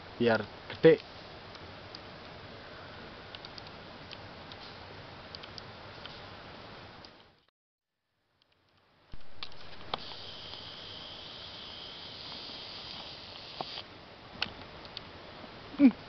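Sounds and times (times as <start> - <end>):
even outdoor hiss: 0.0 - 7.4, 8.0 - 16.0
insect high buzz: 9.2 - 13.9.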